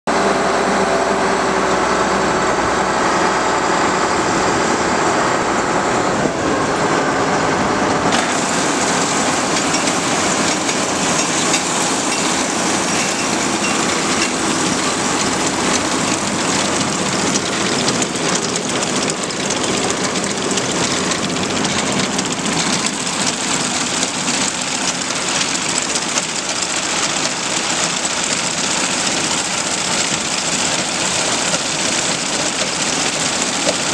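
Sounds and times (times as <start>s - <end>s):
combine harvester humming: 0.1s - 33.9s
chains and drives rattling: 8.2s - 33.9s.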